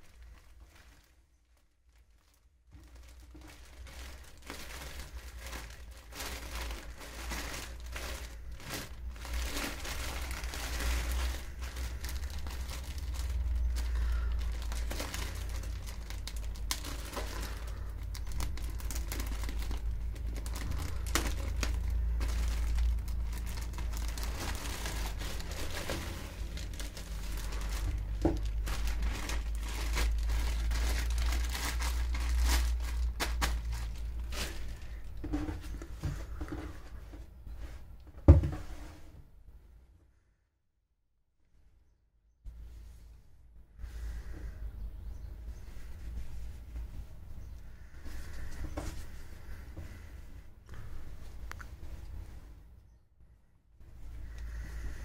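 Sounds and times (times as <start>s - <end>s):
plastic bag crinkling: 0.0s - 36.9s.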